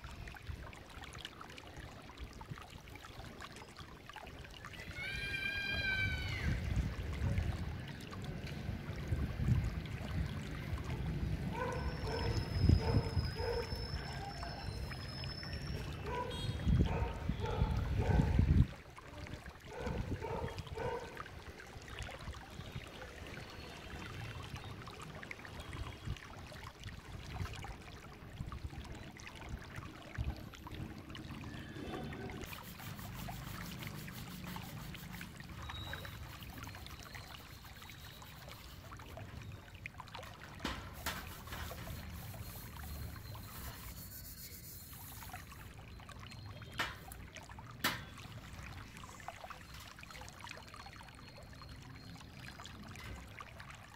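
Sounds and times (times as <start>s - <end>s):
water trickling: 0.0s - 53.9s
utensils being scrubbed in basin: 32.4s - 39.0s, 40.9s - 45.7s.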